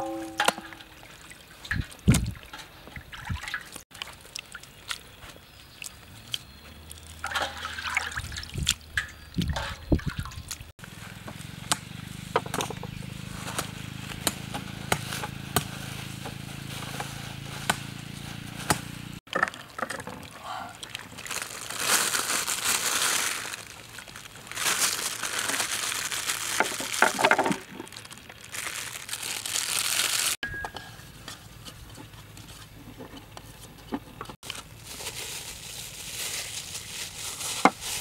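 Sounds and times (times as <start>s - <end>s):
water trickling and sloshing: 0.0s - 10.7s, 19.2s - 21.9s
small clicks and splashes: 0.4s - 10.7s, 19.3s - 22.6s.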